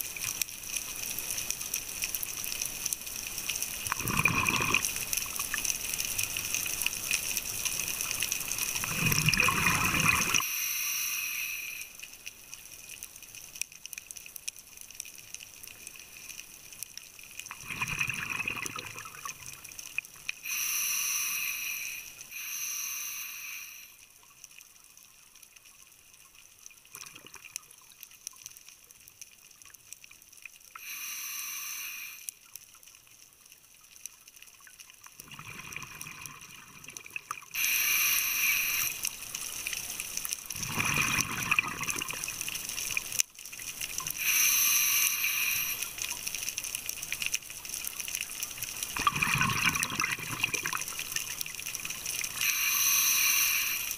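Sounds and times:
faint crackling clicks: 0.0 - 53.9
gurgling rush of bubbles: 3.8 - 5.6, 8.4 - 10.5, 17.5 - 19.6, 35.2 - 37.6, 40.5 - 43.2, 48.8 - 53.9
diver breathing through regulator: 9.9 - 11.9, 20.4 - 24.0, 37.6 - 39.1, 44.1 - 46.0, 52.4 - 53.9.

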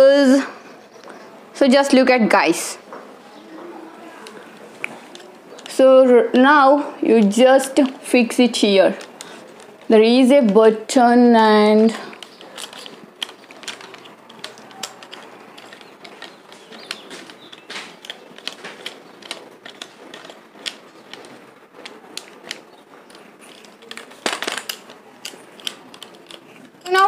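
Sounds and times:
small plastic clicks and rattles: 11.7 - 27.0.

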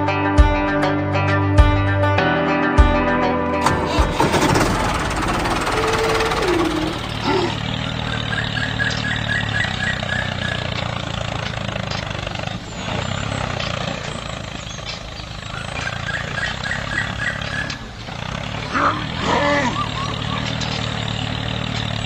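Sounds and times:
tractor engine running: 3.5 - 22.0.

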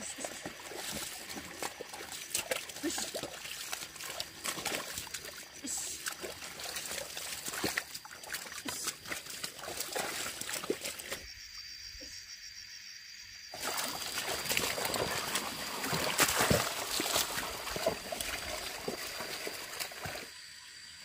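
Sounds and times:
mud and water squelching: 0.0 - 11.4, 13.6 - 20.4.

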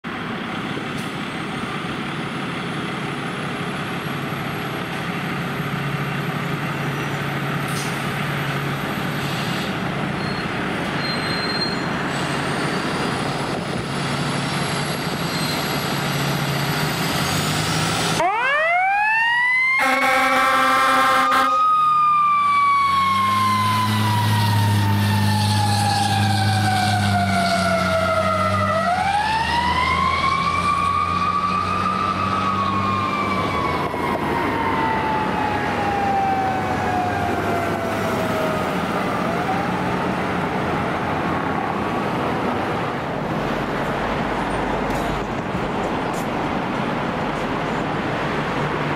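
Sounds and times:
fire engine diesel running: 0.0 - 11.1, 11.8 - 48.9
horn blast: 19.8 - 21.6.

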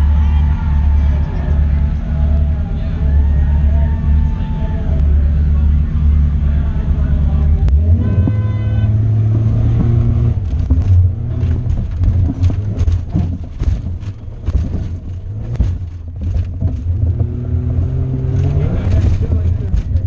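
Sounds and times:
truck engine revving: 0.0 - 20.0
knocks and rattles of truck body: 9.4 - 17.3, 18.7 - 20.0.

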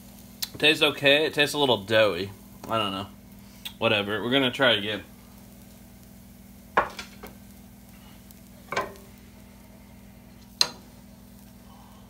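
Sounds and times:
faint steady hum: 0.0 - 12.0
pan and utensil clanking: 6.8 - 7.3, 8.7 - 9.1.

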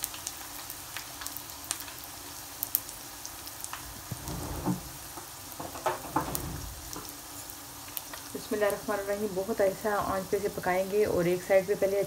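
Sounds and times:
oil sizzling with fine crackling: 0.0 - 12.0
oil popping: 3.7 - 7.3.

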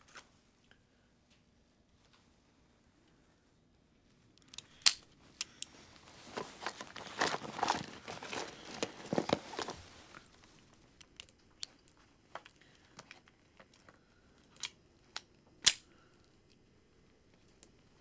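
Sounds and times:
bag rustling and crinkling: 5.7 - 10.8
revolver cartridges clicking: 11.0 - 16.4.

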